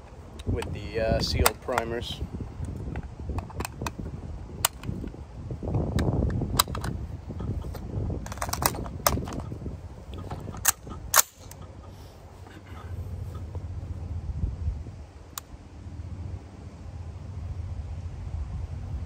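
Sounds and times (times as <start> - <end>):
magazine seated in rifle: 6.0 - 7.0, 7.7 - 9.4
cartridges clicking: 10.6 - 11.6.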